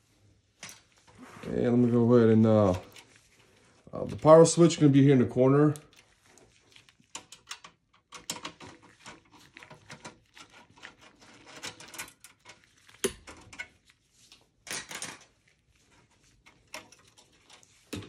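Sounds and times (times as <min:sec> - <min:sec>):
screwdriver scraping metal: 0:08.2 - 0:12.6.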